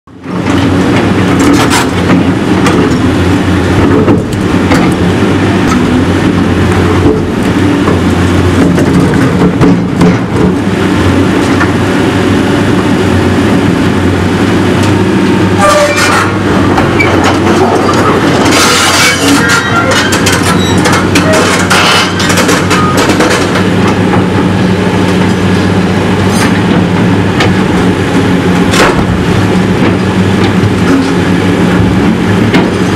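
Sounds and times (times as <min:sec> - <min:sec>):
excavator diesel engine running: 0:00.1 - 0:32.9
concrete and metal debris clanking: 0:17.2 - 0:23.6.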